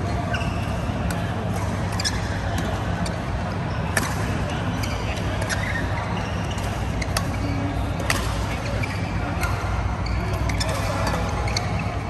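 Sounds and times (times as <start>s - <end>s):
rackets striking shuttlecocks: 3.9s - 5.7s, 8.0s - 9.7s.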